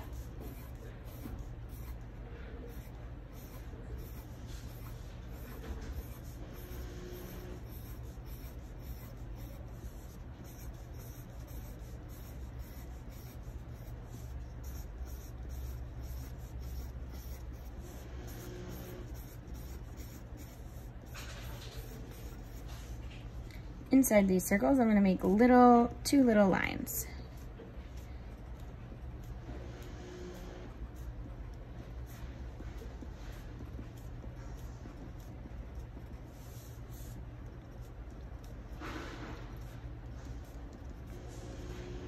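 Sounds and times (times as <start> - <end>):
pencil scratching on paper: 0.0 - 23.4, 31.8 - 42.0
steady low hum: 0.0 - 42.0.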